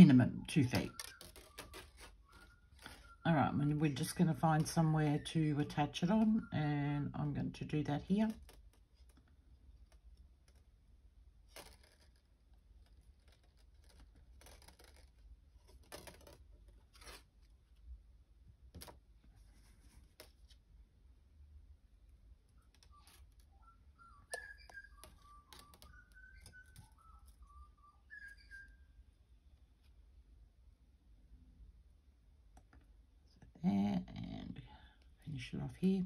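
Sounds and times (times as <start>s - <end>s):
faint short whistle-like tones: 0.6s - 3.3s, 22.6s - 29.4s
wire rustling and clicking: 0.7s - 3.2s, 22.5s - 28.5s.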